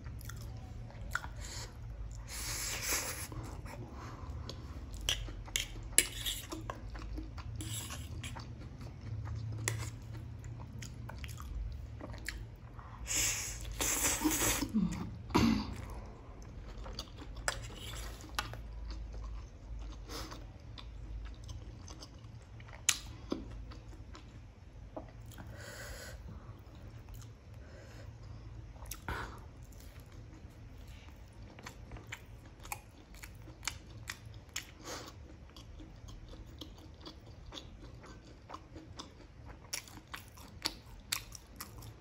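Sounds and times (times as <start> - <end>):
chewing and slurping noodles: 0.1 - 12.4, 16.0 - 24.3.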